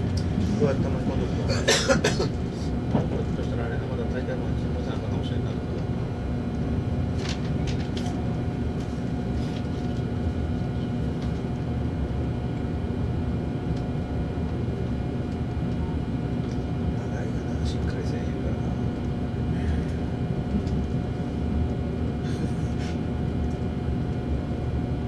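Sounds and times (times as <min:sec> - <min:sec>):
train wheels rumbling on rail: 0:00.0 - 0:11.6
steady hum: 0:00.0 - 0:25.0.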